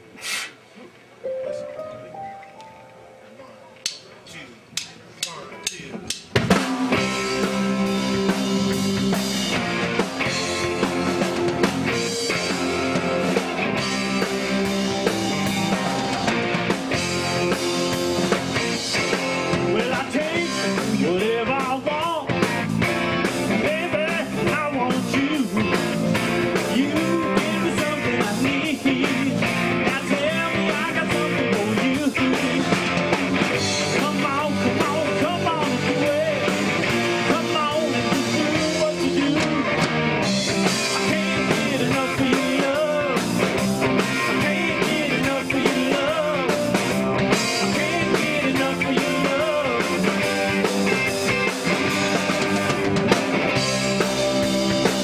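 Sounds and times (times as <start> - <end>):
live rock band playing: 4.8 - 55.0
person singing: 19.5 - 22.4, 23.5 - 33.0, 33.8 - 39.7, 40.6 - 50.4.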